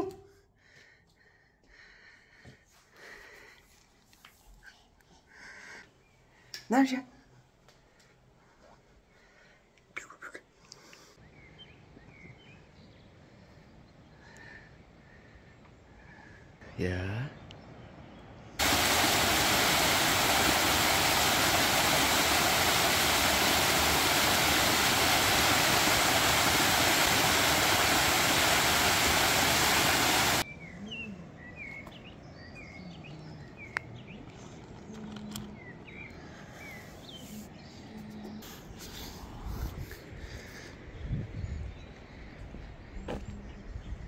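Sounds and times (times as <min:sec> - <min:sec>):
water cascading down rock: 0:18.6 - 0:30.4
faint bird chirps: 0:30.4 - 0:39.0.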